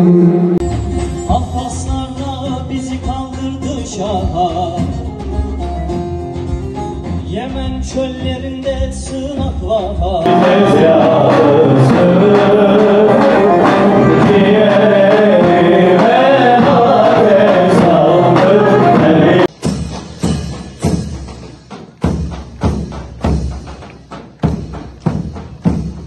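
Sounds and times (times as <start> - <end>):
heavy drum beats: 0.1 - 26.0
male choir singing folk song: 10.2 - 19.5.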